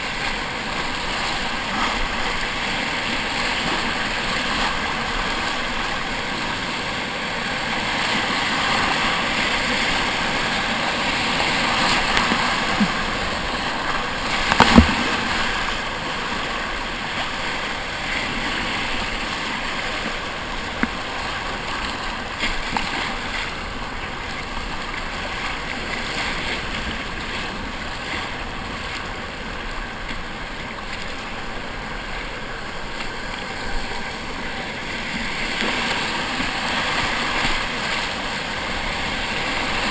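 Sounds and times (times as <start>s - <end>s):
rushing whitewater: 0.0s - 39.9s
paddle blades dipping into water: 9.6s - 16.6s.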